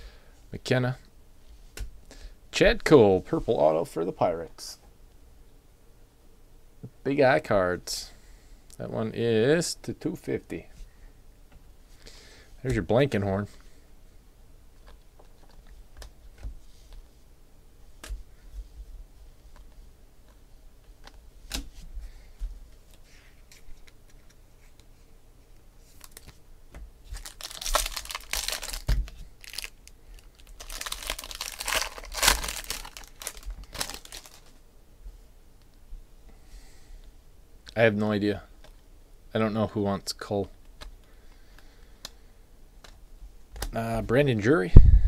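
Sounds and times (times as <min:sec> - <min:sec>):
wrapper tearing and crinkling: 0:27.1 - 0:34.5.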